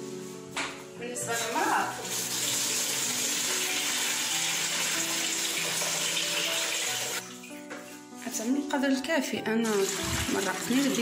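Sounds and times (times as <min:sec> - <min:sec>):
soft background music: 0:00.0 - 0:11.0
water pouring into metal pot: 0:02.0 - 0:07.5, 0:09.6 - 0:11.0.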